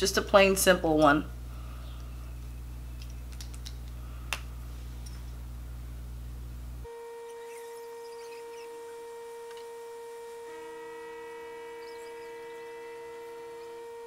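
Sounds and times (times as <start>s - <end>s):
low electrical hum: 0.0s - 14.0s
high electronic drone: 6.8s - 14.0s.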